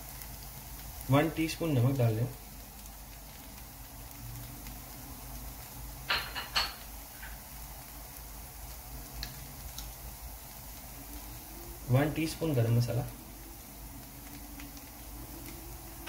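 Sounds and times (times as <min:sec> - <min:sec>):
utensil knocking on frying pan: 0:06.1 - 0:06.8.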